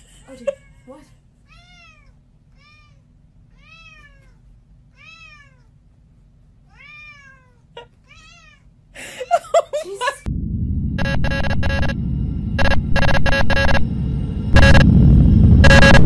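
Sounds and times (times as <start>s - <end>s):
cat meowing: 1.4s - 5.8s, 6.6s - 8.7s.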